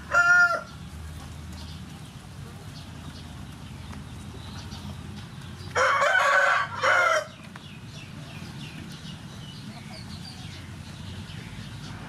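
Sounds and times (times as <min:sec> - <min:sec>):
rooster crowing: 0:00.0 - 0:00.7, 0:05.8 - 0:07.4.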